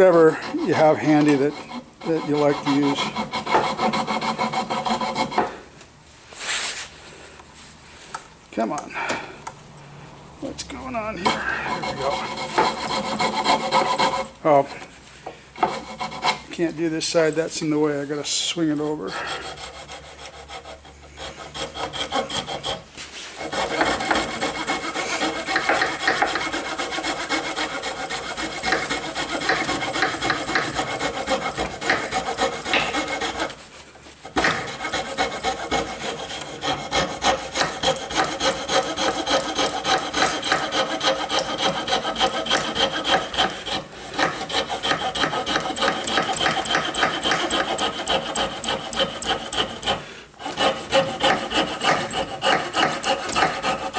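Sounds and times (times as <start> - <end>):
fine saw rasping through wood: 0.0 - 5.6, 10.5 - 14.8, 15.6 - 53.9.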